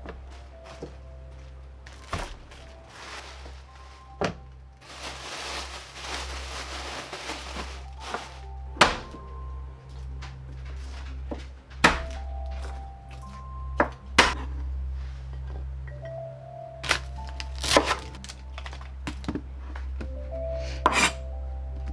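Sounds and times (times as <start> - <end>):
quiet background music: 0.0 - 21.9
rustling: 0.3 - 9.1.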